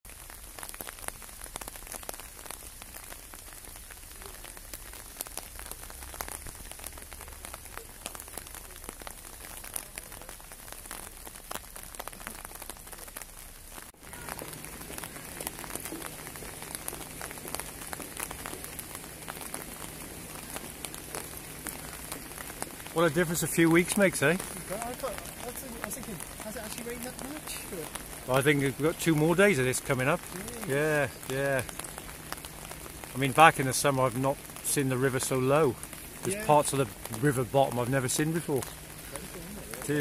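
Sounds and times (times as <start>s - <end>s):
light rain pattering: 0.0s - 40.0s.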